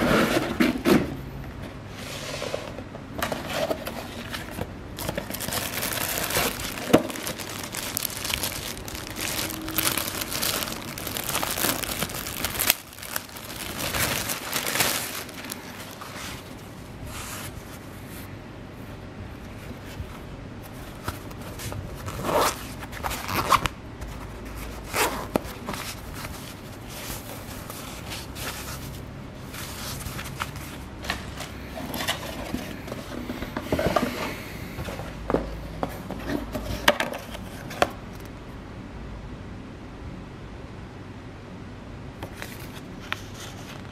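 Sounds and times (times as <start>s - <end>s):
plastic bag crinkling: 5.0s - 16.7s
fabric rubbing: 5.0s - 18.3s.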